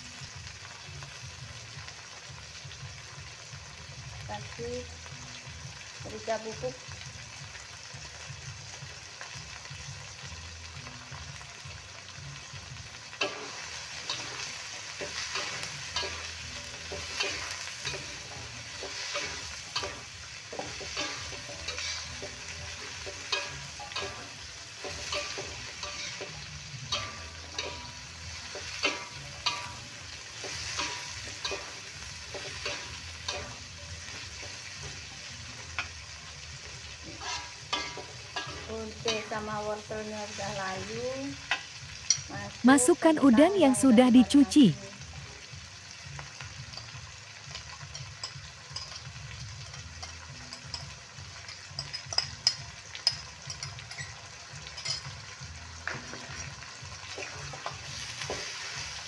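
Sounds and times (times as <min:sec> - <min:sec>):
vegetables sizzling in a wok: 0:00.0 - 0:59.0
metal spatula scraping the pan: 0:12.4 - 0:42.3, 0:46.7 - 0:59.0.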